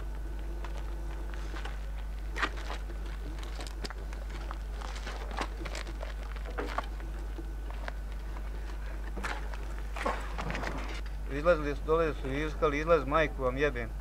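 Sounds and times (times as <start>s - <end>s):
faint clicks and rustles: 0.0s - 11.2s
steady low hum: 0.0s - 14.0s.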